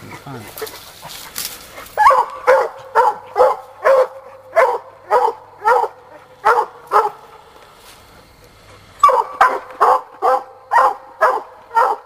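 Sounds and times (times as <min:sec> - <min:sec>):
hound barking: 0:01.8 - 0:07.3, 0:09.0 - 0:12.0.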